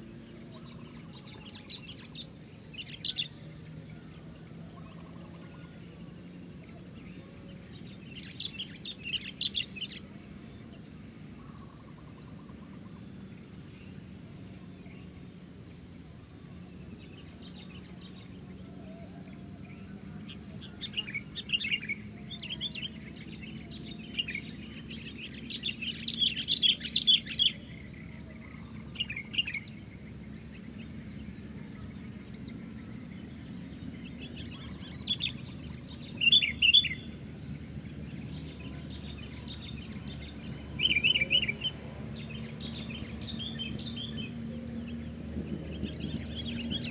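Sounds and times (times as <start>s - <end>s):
insects buzzing: 0.0s - 46.9s
bird singing bright notes: 38.3s - 46.9s.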